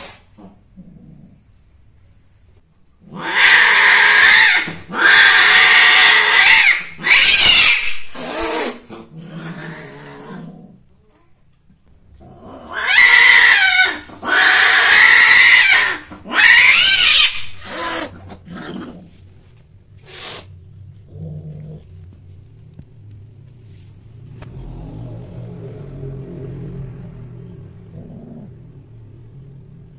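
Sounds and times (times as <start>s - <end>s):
cat growling: 0.0s - 1.7s, 3.0s - 11.2s, 12.1s - 19.3s, 20.0s - 22.1s, 24.3s - 29.9s
cat yowling: 3.2s - 8.8s, 12.7s - 18.2s.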